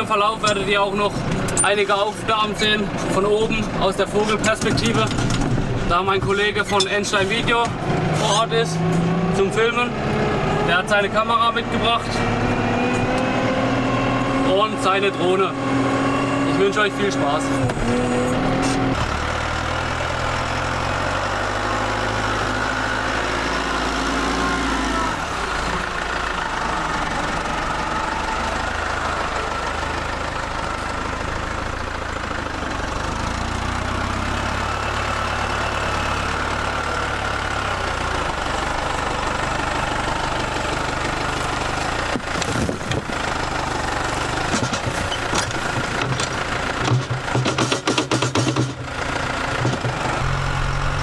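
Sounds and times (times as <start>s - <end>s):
tractor diesel engine running: 0.0s - 51.0s
bucket knocks: 46.8s - 48.8s.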